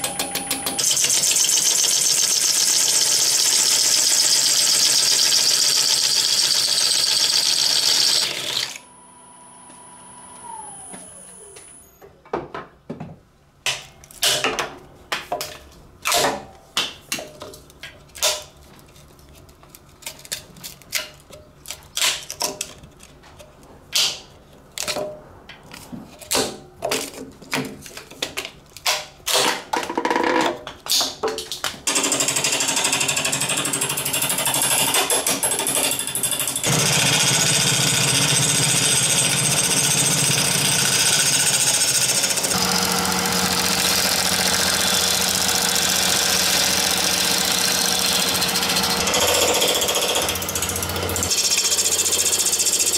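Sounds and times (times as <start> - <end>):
turning tool cutting on a lathe: 0.0 - 8.8, 32.0 - 52.9.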